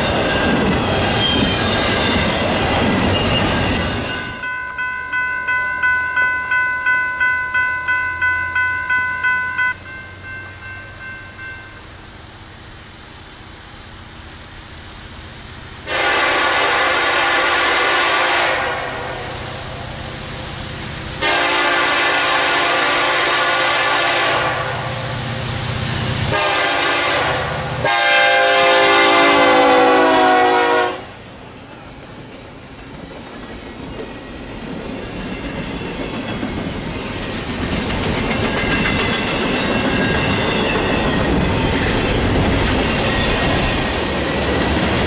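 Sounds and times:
freight train rumbling: 0.0 - 45.0
locomotive air horn blasts: 15.9 - 19.2, 21.2 - 25.0, 26.3 - 31.1.

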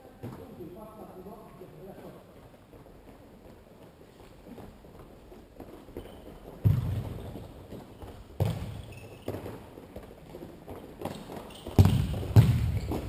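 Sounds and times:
running footsteps: 2.1 - 13.0
ball thumps echoing in hall: 4.5 - 13.0.

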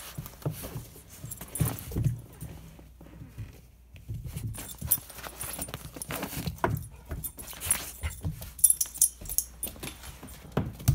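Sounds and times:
light metallic jingle: 4.4 - 10.9.

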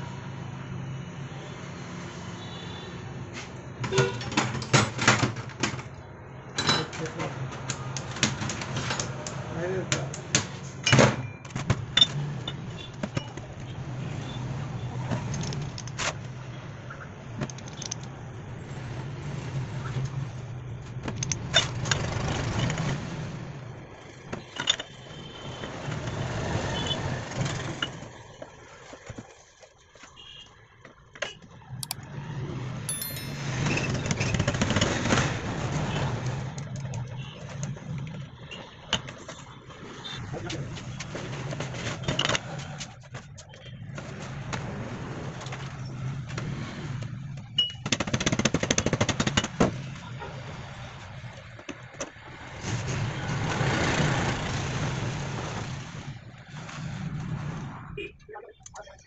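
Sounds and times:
metal parts clinking: 32.9 - 33.6.

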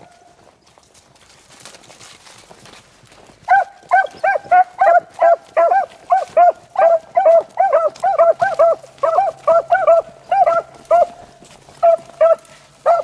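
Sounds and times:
hounds baying: 3.5 - 13.0.

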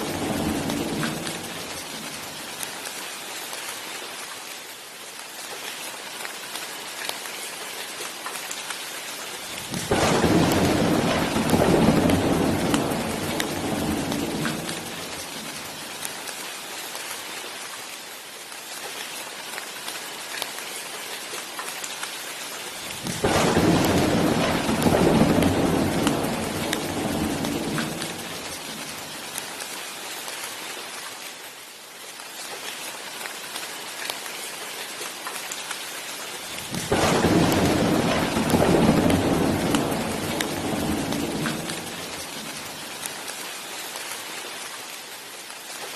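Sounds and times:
rolling thunder: 0.0 - 2.4, 9.6 - 15.8, 22.9 - 29.1, 36.6 - 42.8
steady rain: 0.0 - 45.9.

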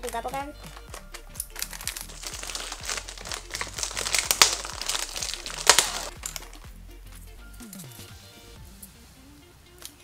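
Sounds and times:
plastic wrapper crinkling: 0.0 - 6.7
sharp plastic crackles: 0.0 - 6.7.

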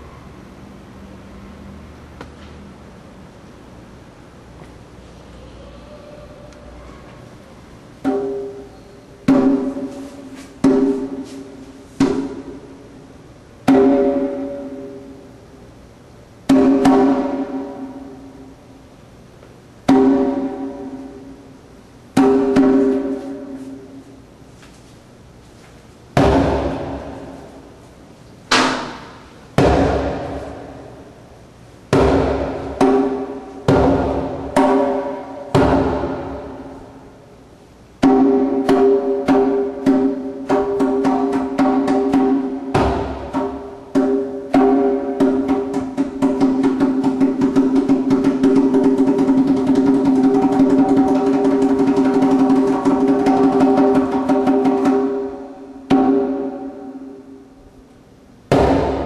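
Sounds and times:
djembe hits: 8.0 - 10.0, 10.6 - 12.8, 13.6 - 15.2, 16.5 - 18.2, 19.9 - 21.4, 22.2 - 23.6, 26.2 - 27.5, 28.5 - 31.0, 31.9 - 36.8, 38.0 - 57.1, 58.5 - 59.0.

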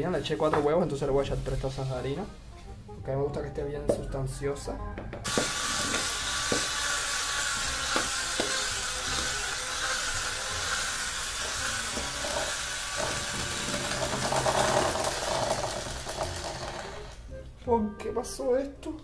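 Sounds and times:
electric hand mixer whining: 5.2 - 17.2.

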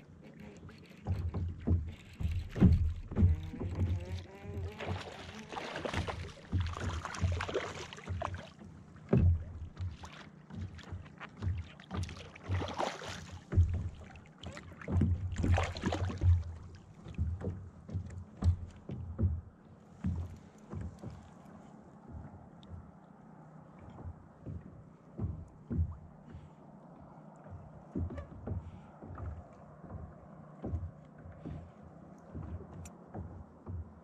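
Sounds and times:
water splashing: 0.0 - 19.3
water slapping against kayak hull: 0.0 - 34.0.

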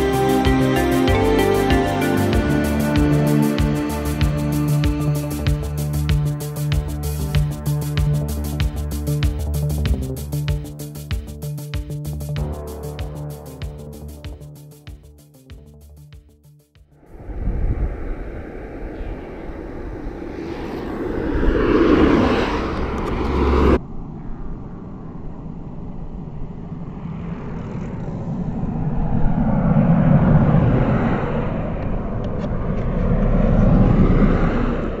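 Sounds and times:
wind and road noise: 0.0 - 14.9, 16.9 - 35.0.

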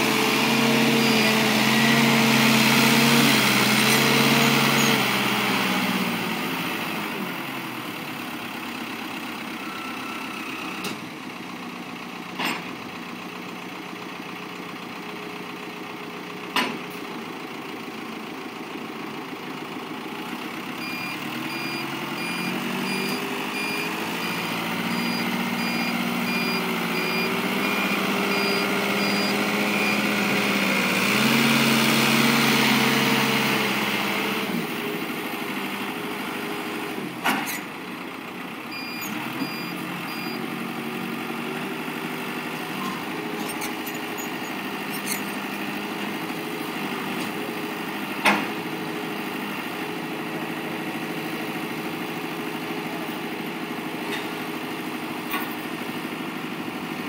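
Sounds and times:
heavy diesel engines running: 0.0 - 57.0
backup alarm beeping: 20.8 - 30.2.

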